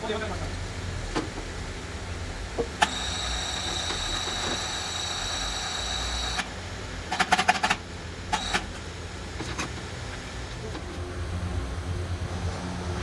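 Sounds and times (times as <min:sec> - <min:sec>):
machine-shop rumble: 0:00.0 - 0:13.0
high-pitched whine: 0:02.8 - 0:06.6.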